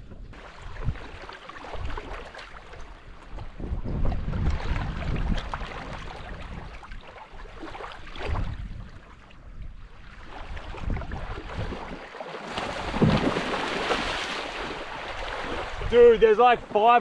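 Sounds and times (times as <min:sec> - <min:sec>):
wind buffeting microphone: 0:00.0 - 0:07.4, 0:08.0 - 0:12.0, 0:12.7 - 0:17.0
water lapping at shoreline: 0:00.1 - 0:17.0
sharks splashing in water: 0:12.4 - 0:15.9.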